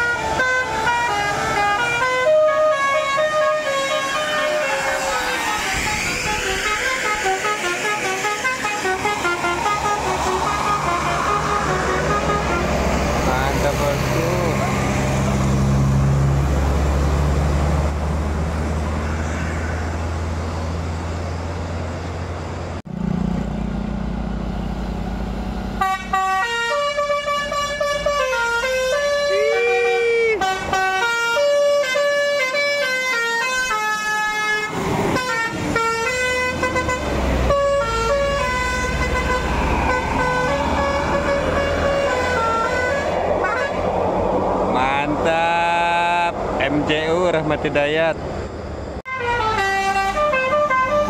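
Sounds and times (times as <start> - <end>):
musical air horn tune: 0.0 - 12.9, 25.8 - 43.8, 49.1 - 51.0
bus diesel engine passing: 0.0 - 51.0.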